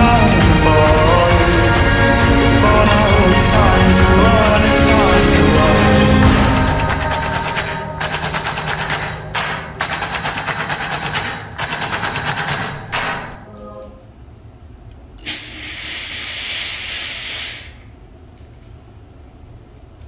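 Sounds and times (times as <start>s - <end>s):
fast mechanical rattle: 3.2s - 13.4s
hiss: 15.2s - 18.0s.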